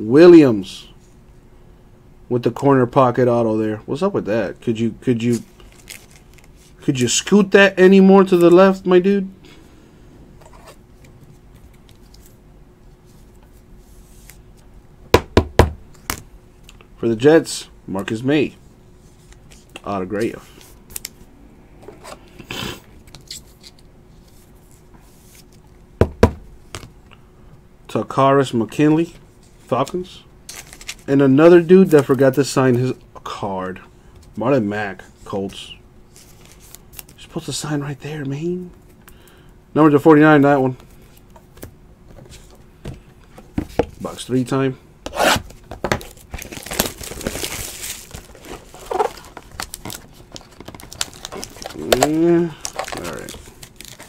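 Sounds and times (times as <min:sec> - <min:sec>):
wrapper rustling: 0:05.4 - 0:06.8, 0:30.5 - 0:31.1, 0:45.9 - 0:54.0
packaging crinkling and tearing: 0:05.6 - 0:06.6, 0:30.5 - 0:31.1, 0:45.9 - 0:54.0
cards sliding rustle: 0:13.1 - 0:14.7, 0:21.8 - 0:25.6, 0:36.1 - 0:37.2.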